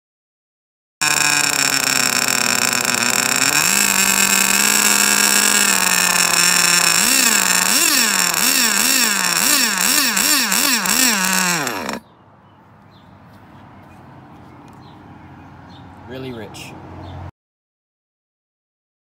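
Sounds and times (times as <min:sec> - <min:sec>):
nitro engine idling and revving: 0:01.0 - 0:12.1.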